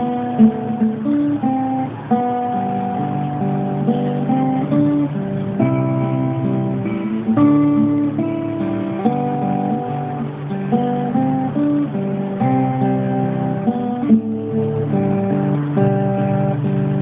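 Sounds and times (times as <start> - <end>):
fingerpicked acoustic guitar: 0.0 - 17.0.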